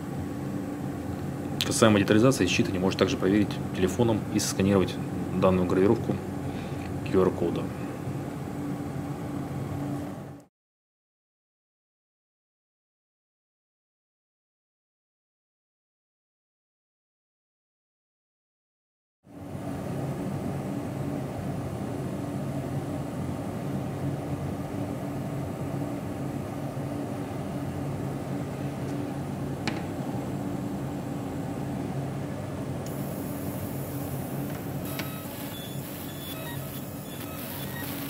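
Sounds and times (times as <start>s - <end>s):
machine cooling fans humming: 0.0s - 10.4s, 19.3s - 38.0s.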